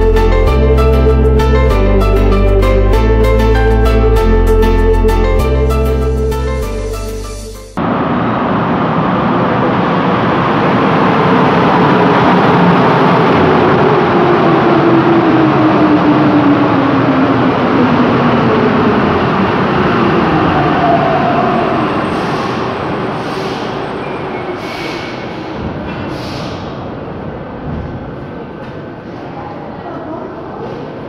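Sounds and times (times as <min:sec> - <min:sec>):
falling train whine: 0:00.0 - 0:28.6
train wheels and motors rumbling: 0:07.8 - 0:31.0.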